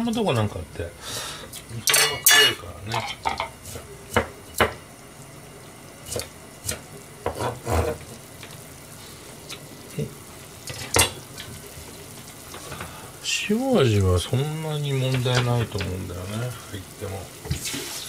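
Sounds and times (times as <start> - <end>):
faint steady hiss: 0.0 - 18.0
kitchen utensils and dishes clinking: 1.8 - 3.8.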